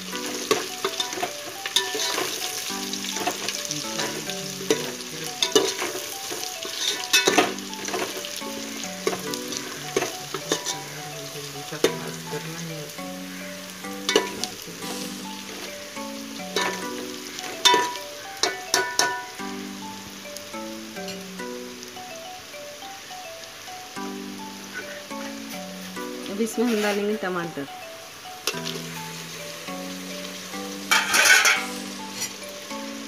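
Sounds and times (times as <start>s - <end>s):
background music plucked melody: 0.0s - 33.0s
onions sizzling in oil: 0.0s - 33.0s
metal ladle scraping pot: 0.3s - 2.4s, 6.6s - 8.2s, 30.9s - 32.4s.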